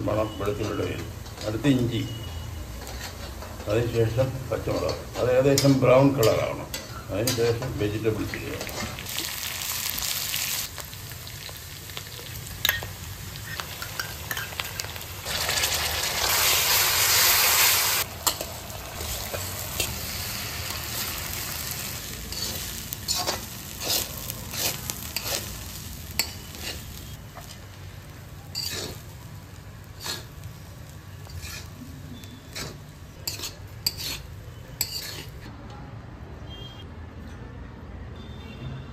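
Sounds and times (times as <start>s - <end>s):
food sizzling in a wok: 0.0s - 35.5s
metal spatula scraping a pan: 0.2s - 9.0s, 13.4s - 27.6s, 28.5s - 29.1s, 29.9s - 30.5s, 31.1s - 35.5s.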